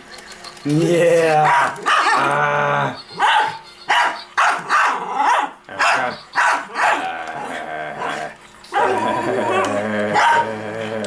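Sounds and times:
small dog barking excitedly: 0:01.4 - 0:02.3, 0:03.2 - 0:07.0.

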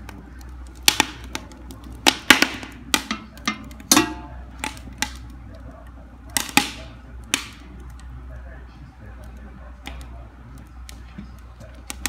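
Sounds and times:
wood fire crackling and popping: 0:00.0 - 0:12.0
metal stove door clanging shut: 0:03.1 - 0:04.4.

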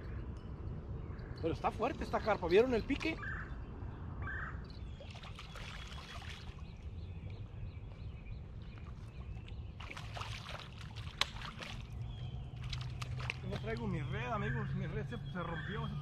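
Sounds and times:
fish splashing in water: 0:05.0 - 0:06.6, 0:09.8 - 0:14.0.

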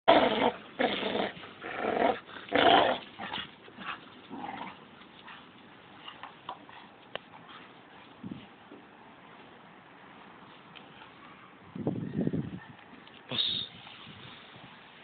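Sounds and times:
dog growling: 0:00.1 - 0:03.4.

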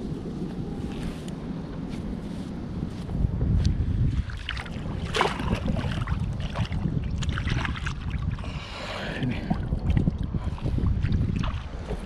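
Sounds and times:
wind rumbling on microphone: 0:00.0 - 0:12.0
water sloshing and splashing: 0:04.1 - 0:12.0.

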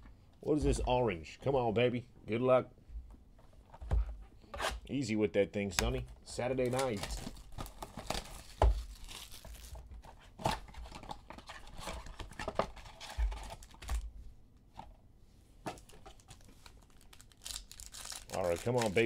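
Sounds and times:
plastic wrappers tearing and crinkling: 0:06.6 - 0:14.0, 0:15.8 - 0:19.0
cards being handled: 0:15.7 - 0:19.0.

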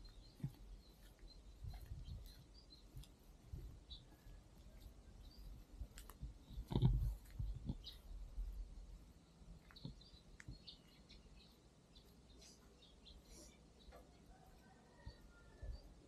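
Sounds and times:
thumps and rumble on microphone: 0:00.0 - 0:04.2, 0:04.8 - 0:08.7
bird chirps: 0:00.0 - 0:16.0.

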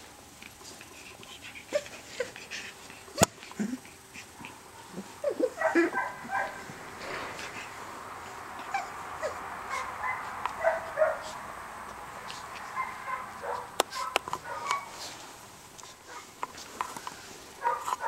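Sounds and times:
steady hiss: 0:00.0 - 0:18.0
puppy yipping and whimpering: 0:04.9 - 0:06.6, 0:08.6 - 0:11.2, 0:12.7 - 0:15.0.

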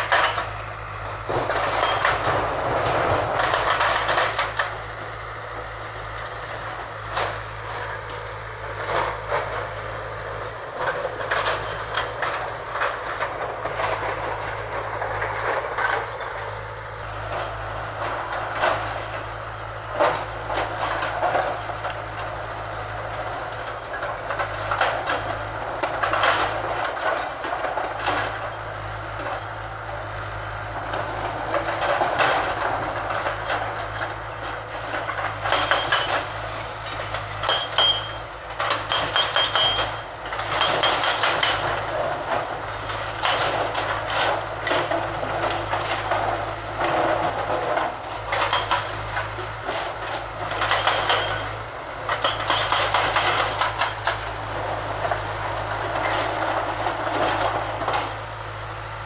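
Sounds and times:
hydraulic breaker hammering rock: 0:00.0 - 0:58.4
excavator diesel engine running: 0:00.0 - 0:59.0
knocks of steel on stone: 0:35.3 - 0:36.4, 0:37.0 - 0:41.8, 0:50.5 - 0:54.2.

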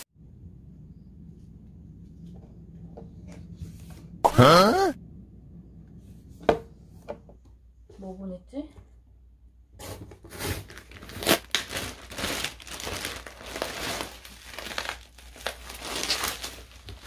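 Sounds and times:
plastic wrap crinkling: 0:10.3 - 0:17.0.

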